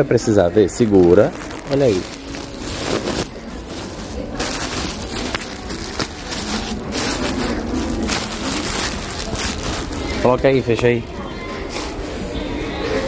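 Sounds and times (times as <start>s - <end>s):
straw handbag rustling: 0.8s - 10.5s
plastic bag crinkling: 0.8s - 10.8s.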